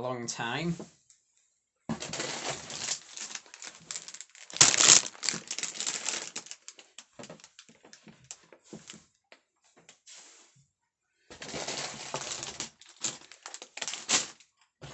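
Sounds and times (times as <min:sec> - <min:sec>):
plastic bags crinkling: 0:02.0 - 0:09.0, 0:11.4 - 0:14.5.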